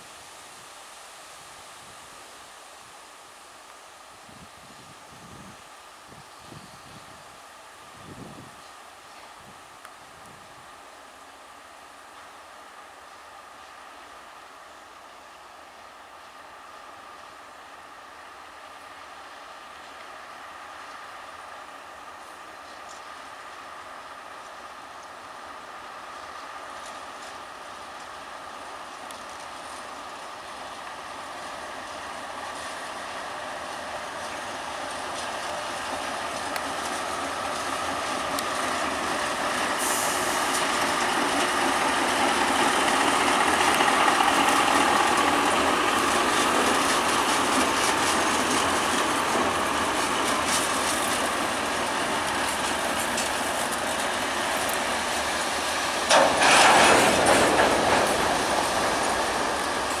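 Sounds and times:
diesel locomotive engine: 0:00.0 - 1:00.0
freight wagons rolling: 0:31.8 - 1:00.0
loud rush of noise: 0:41.6 - 1:00.0.

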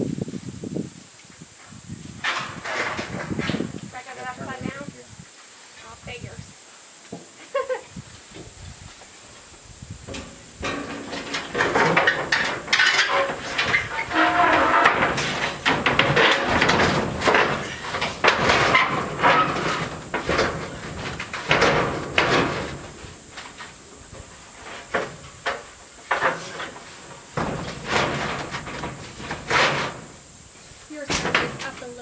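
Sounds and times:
metal sheet rattling and scraping: 0:02.0 - 0:04.9, 0:10.0 - 0:32.0.

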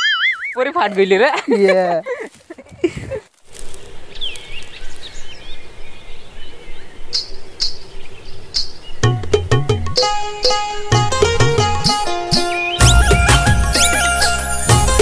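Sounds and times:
birds chirping: 0:03.6 - 0:09.3, 0:12.0 - 0:14.9
plucked-string music: 0:09.2 - 0:15.0.

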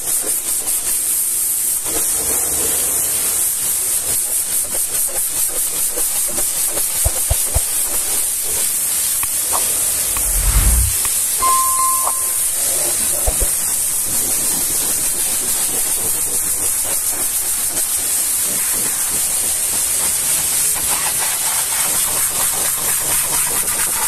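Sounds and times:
low rumble: 0:10.1 - 0:11.1.

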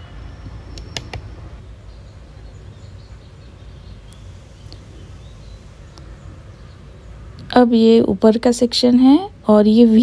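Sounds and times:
faint bird chirps: 0:00.0 - 0:07.2.

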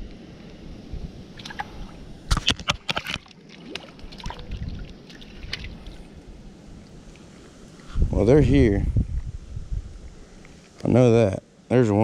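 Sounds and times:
steady low rumble: 0:00.0 - 0:02.3, 0:03.9 - 0:10.6
fish splashing at water surface: 0:01.4 - 0:06.1.

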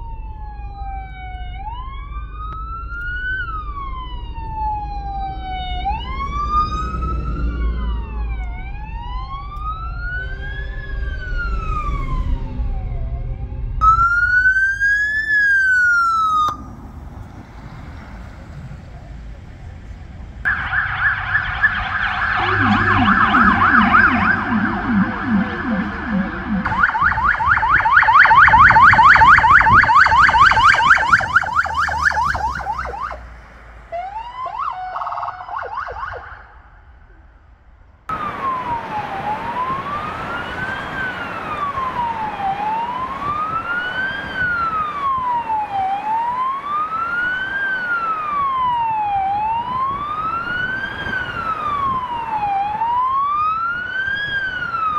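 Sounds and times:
siren yelping: 0:00.0 - 0:16.8, 0:20.5 - 0:33.3, 0:33.9 - 0:36.9, 0:38.1 - 0:54.9
lower siren yelp: 0:00.0 - 0:16.9, 0:20.4 - 0:37.1, 0:38.1 - 0:54.9
police siren slow wail: 0:00.0 - 0:17.9, 0:20.4 - 0:37.1, 0:38.1 - 0:54.9.

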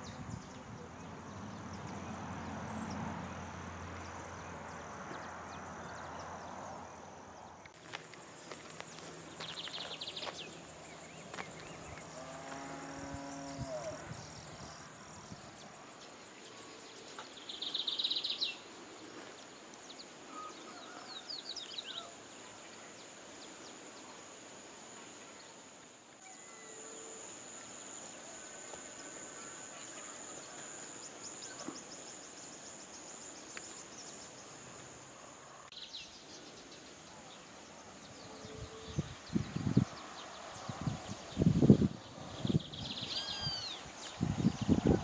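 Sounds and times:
high-pitched insect drone: 0:07.8 - 0:17.3.

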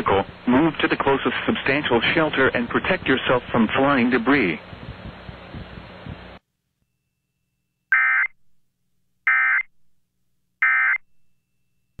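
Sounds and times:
radio hiss: 0:00.0 - 0:06.4.

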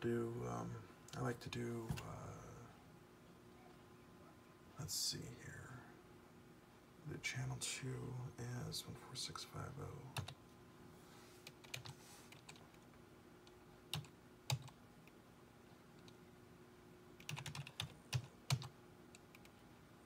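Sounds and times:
computer keyboard keystrokes: 0:11.5 - 0:12.7, 0:13.9 - 0:14.8, 0:17.2 - 0:19.5.

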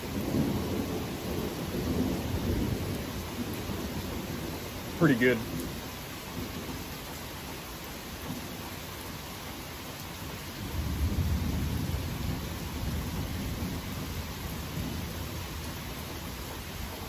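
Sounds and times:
distant thunder rumbling: 0:00.0 - 0:07.0, 0:10.6 - 0:17.0.

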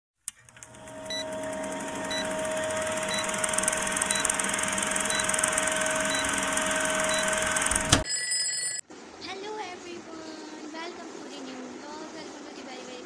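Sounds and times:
film projector whirring: 0:00.2 - 0:08.0
short high beeps: 0:04.1 - 0:04.4, 0:05.0 - 0:08.2.

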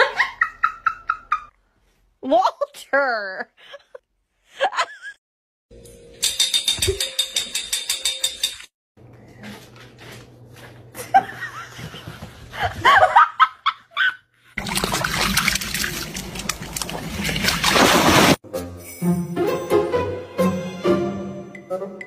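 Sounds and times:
dog swimming through water: 0:14.6 - 0:18.4.

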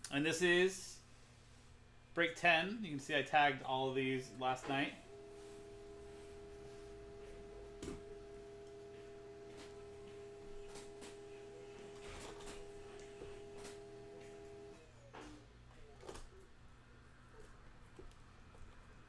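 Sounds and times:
steady held chord tone: 0:04.0 - 0:11.8.

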